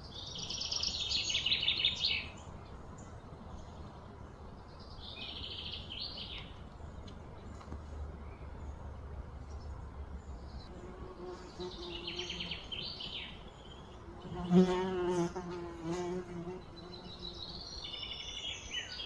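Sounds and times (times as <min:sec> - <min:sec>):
small birds chirping: 0:00.0 - 0:19.0
flying insect buzzing: 0:10.7 - 0:12.8, 0:14.0 - 0:17.6.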